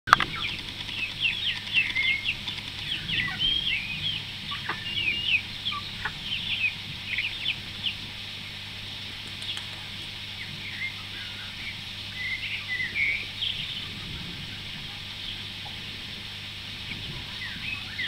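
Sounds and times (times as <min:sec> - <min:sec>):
chicks peeping: 0:00.1 - 0:18.0.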